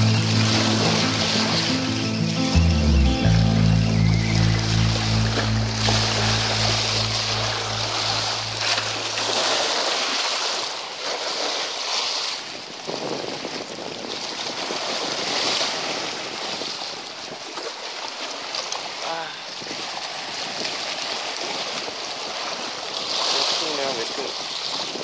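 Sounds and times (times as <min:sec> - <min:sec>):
music sting: 0:00.0 - 0:09.9
sea waves washing over rocks: 0:00.0 - 0:25.0
wind on microphone: 0:12.4 - 0:17.7, 0:24.0 - 0:25.0.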